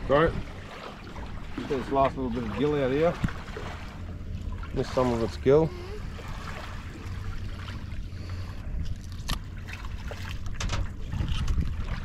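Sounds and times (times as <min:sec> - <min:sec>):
small waves lapping: 0:00.0 - 0:12.0
wind rumbling on microphone: 0:04.5 - 0:12.0.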